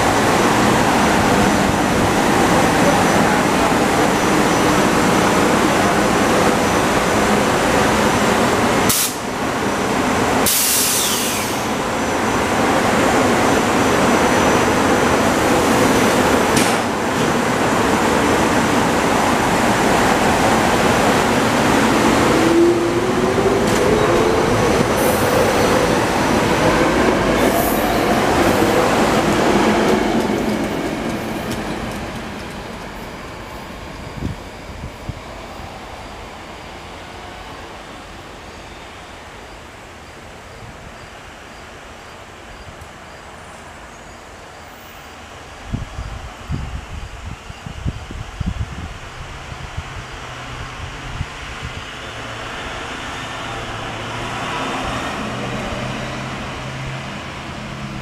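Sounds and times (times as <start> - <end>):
train wheels rumbling and rattling: 0.0 - 38.3
train whine rising in pitch: 19.4 - 39.2.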